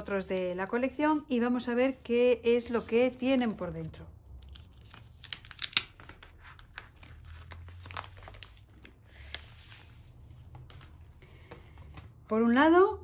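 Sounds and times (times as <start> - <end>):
plastic packaging crinkling: 4.6 - 9.0.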